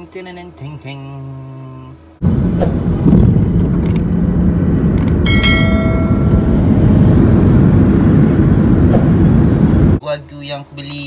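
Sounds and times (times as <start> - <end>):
jet engine rumble in cabin: 2.2 - 10.0
bell-like chime: 5.3 - 6.6.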